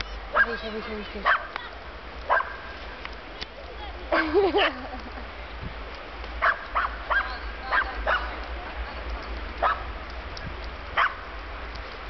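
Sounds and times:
dogs yipping and barking: 2.3 - 2.7, 6.4 - 8.3, 11.0 - 11.2.

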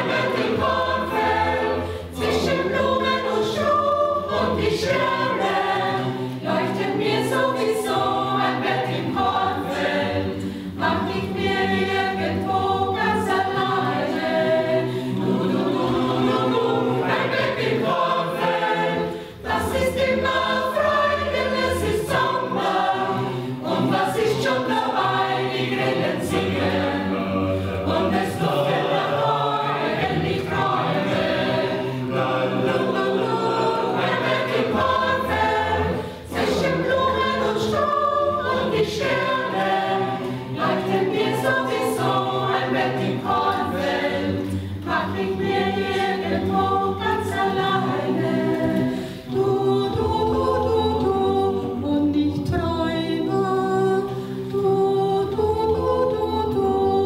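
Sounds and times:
mixed choir singing: 0.0 - 57.0
singers breathing: 1.8 - 2.2, 10.4 - 10.8, 14.8 - 15.2, 19.0 - 19.4, 36.0 - 36.3, 44.4 - 44.9, 48.8 - 49.3.

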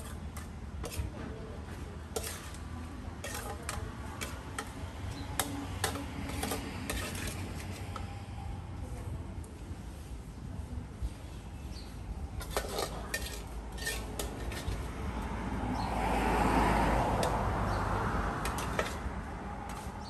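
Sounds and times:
metal utensils clinking on bowls: 0.0 - 1.1, 2.1 - 8.1, 12.4 - 14.9, 18.4 - 19.0.

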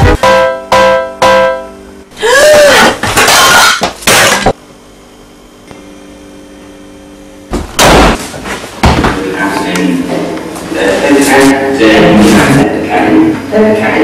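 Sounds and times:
plate smashing on tiled floor: 2.8 - 4.6.

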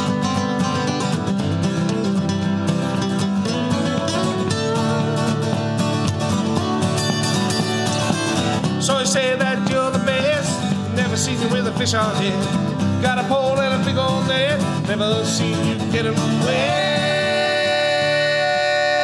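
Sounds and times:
acoustic guitars strummed: 0.0 - 19.0
men singing together: 13.0 - 19.0.

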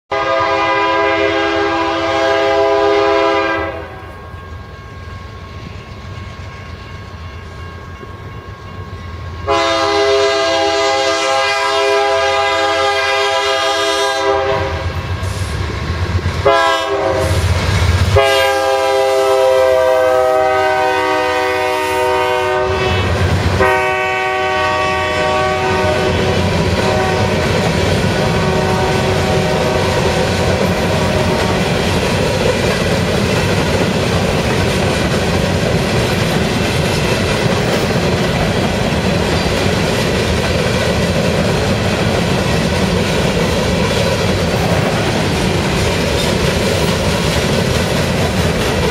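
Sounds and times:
train air horn blasts: 0.1 - 4.3, 9.4 - 15.6, 16.4 - 31.9
rail cars clattering on rails: 2.1 - 48.9.

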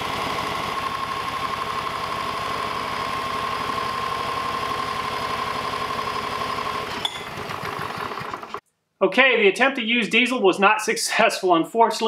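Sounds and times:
cordless drill whine: 0.0 - 8.6
small engine turning over: 0.0 - 8.6.

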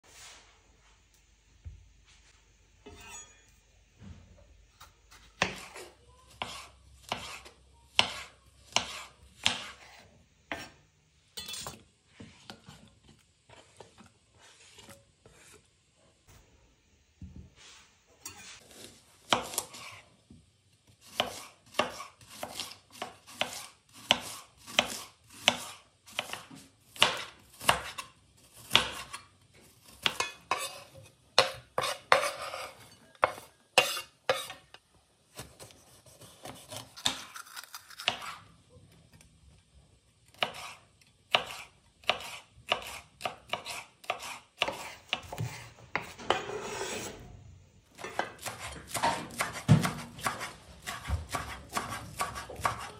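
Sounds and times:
knife chopping on cutting board: 5.4 - 10.8, 21.1 - 29.2, 29.9 - 34.6, 35.4 - 37.3, 38.0 - 38.4, 40.4 - 46.4, 48.0 - 52.9.

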